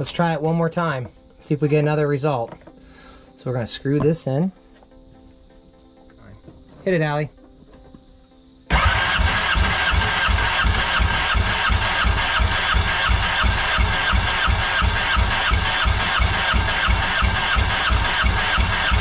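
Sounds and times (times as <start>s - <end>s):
boat engine cranking on starter: 8.7s - 19.0s.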